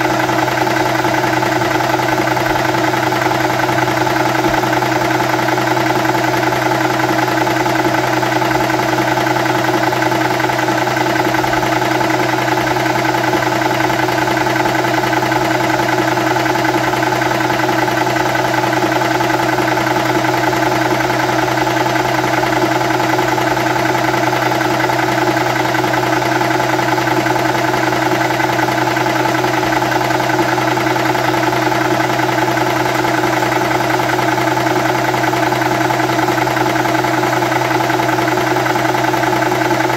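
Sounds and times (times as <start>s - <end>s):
air compressor droning: 0.0s - 39.9s.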